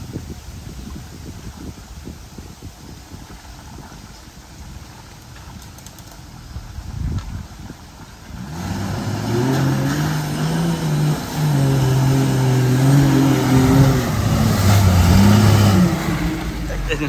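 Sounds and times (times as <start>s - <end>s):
engine revving hard: 8.3s - 17.0s.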